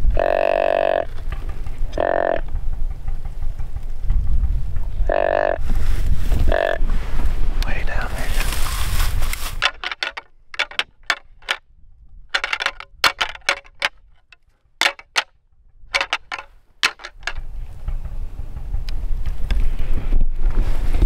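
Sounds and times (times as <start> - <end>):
antlers clacking together: 9.3 - 11.6, 12.3 - 15.3, 15.9 - 17.5.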